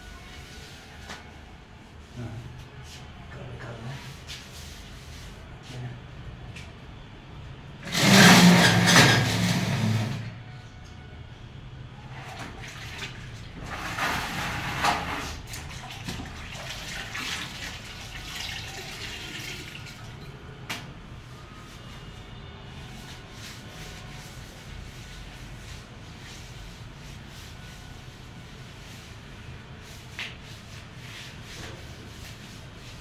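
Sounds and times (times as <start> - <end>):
cloth wiping wet floor: 3.6 - 5.6, 12.1 - 20.1, 22.8 - 33.0
water sloshing and dripping: 12.1 - 20.4
water splashing onto concrete floor: 15.5 - 20.1.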